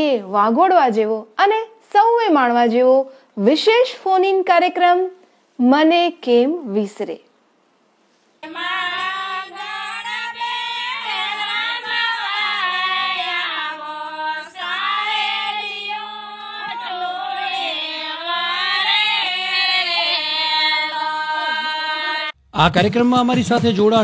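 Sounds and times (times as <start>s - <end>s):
women singing folk song: 8.4s - 22.4s.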